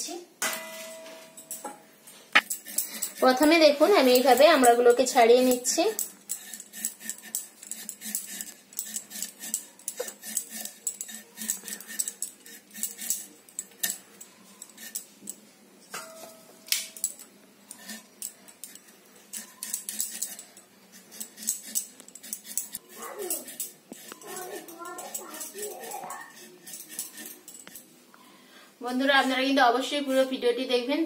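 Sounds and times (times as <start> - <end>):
blade scraping fruit skin: 2.4 - 14.0, 17.7 - 27.8.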